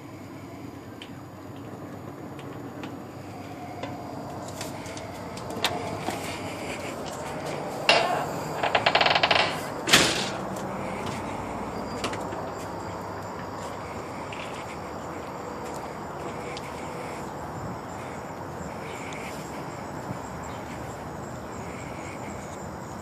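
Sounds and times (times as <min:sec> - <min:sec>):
sudden clatter: 0:07.8 - 0:10.6
rattling clicks: 0:07.9 - 0:10.5.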